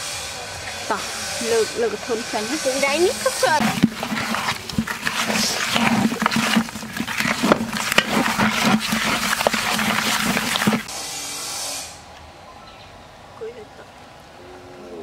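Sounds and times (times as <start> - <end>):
eels squelching in a bucket: 2.4 - 10.9.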